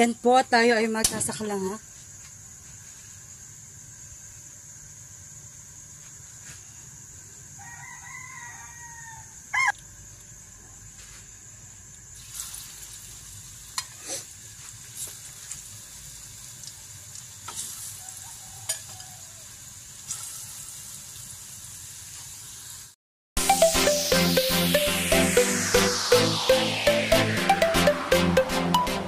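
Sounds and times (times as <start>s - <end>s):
chicken call: 7.8s - 9.8s
pops and crackles of frying: 12.0s - 22.9s
oil sizzling in a pan: 12.2s - 23.0s.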